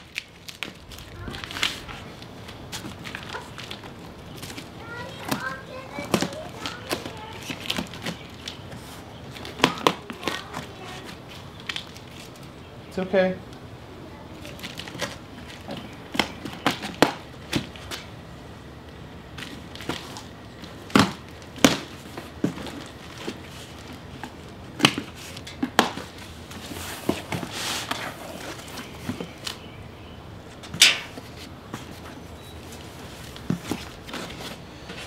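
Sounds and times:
cardboard rustling: 0.0s - 12.4s, 19.4s - 29.6s, 31.1s - 35.0s
tape and cardboard crackling: 0.0s - 12.6s, 14.4s - 18.2s, 18.8s - 29.7s, 30.5s - 35.0s.

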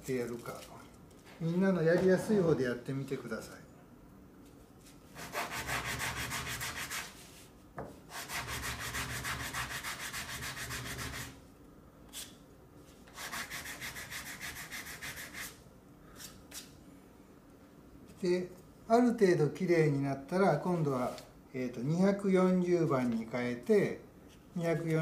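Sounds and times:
sandpaper rubbing wood: 5.2s - 7.5s, 8.1s - 11.4s, 13.1s - 15.6s.

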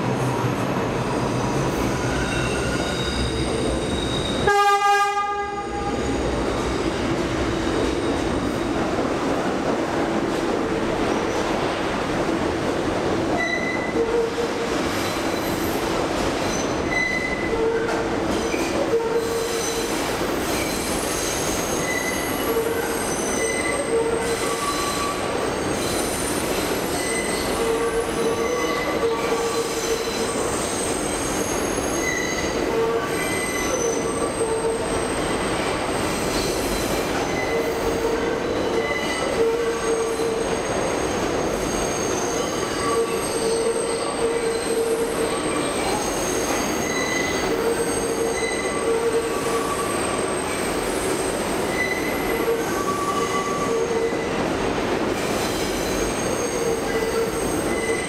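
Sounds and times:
train wheels rumbling on rail: 0.0s - 58.0s
high-pitched wheel squeal: 2.0s - 4.4s, 38.8s - 50.5s, 51.7s - 54.3s, 56.0s - 58.0s.

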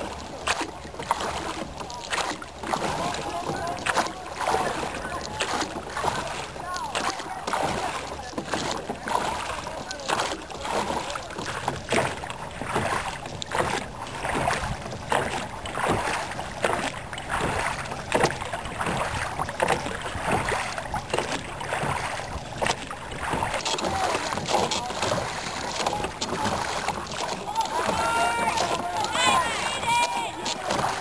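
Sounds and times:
water splashing along hull: 0.0s - 31.0s
oarlock knocks and clicks: 10.0s - 29.4s, 30.4s - 31.0s.

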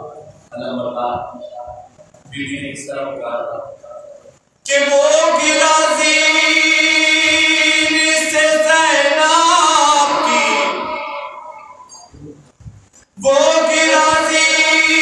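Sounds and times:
man singing a lament: 4.7s - 11.8s, 13.2s - 15.0s.

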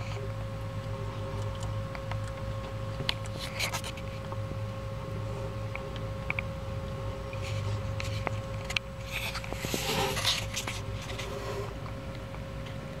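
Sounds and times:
steady low hum: 0.0s - 13.0s
lizard scratching in plastic bowl: 9.0s - 11.7s.

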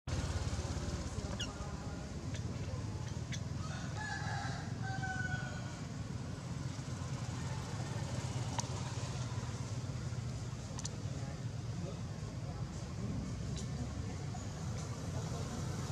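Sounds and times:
sharp clicks: 10.7s - 11.0s.

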